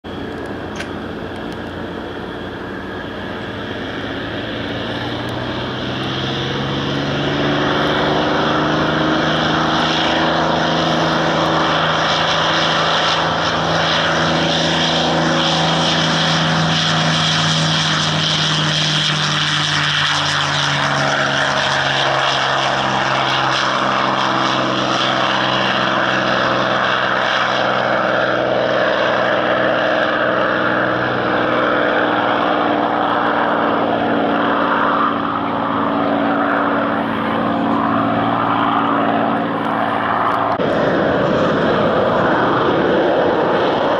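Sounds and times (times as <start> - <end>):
propeller aircraft engine drone: 0.0 - 43.9.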